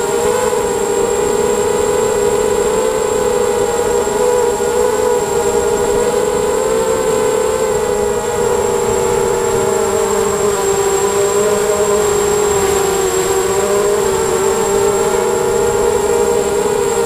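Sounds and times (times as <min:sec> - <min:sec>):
quadcopter motors buzzing: 0:00.0 - 0:17.0
thin high whine: 0:00.0 - 0:17.0.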